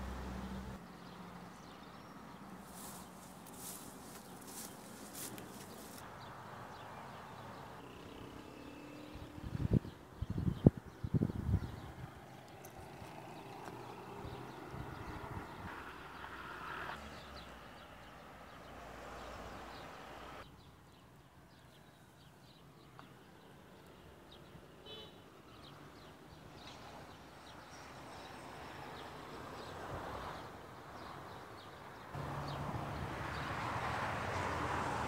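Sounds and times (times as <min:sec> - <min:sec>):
steady outdoor hiss: 0:00.0 - 0:11.1, 0:15.6 - 0:25.5.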